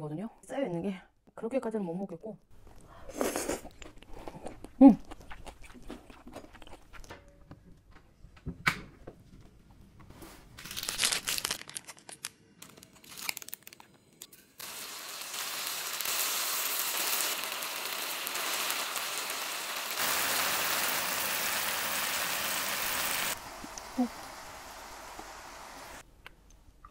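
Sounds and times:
plastic packet crinkling and tearing: 0:10.6 - 0:13.9
noodles sizzling in pan: 0:14.6 - 0:26.0.

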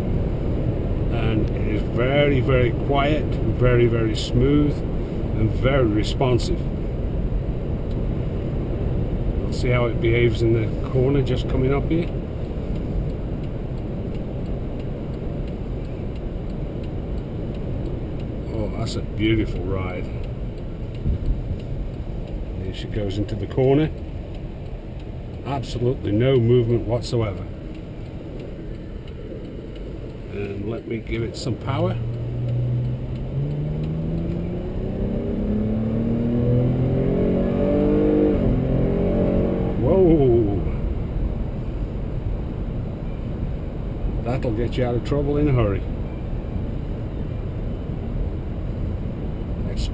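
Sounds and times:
car cabin road and engine noise: 0:00.0 - 0:49.9
faint light ticks: 0:03.2 - 0:34.5.

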